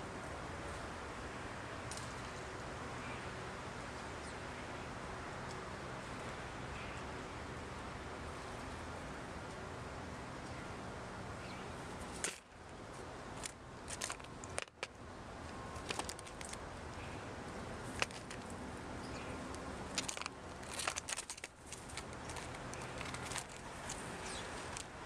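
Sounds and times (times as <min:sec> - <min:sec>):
bird pecking at seeds: 0:15.8 - 0:16.6, 0:17.8 - 0:25.0.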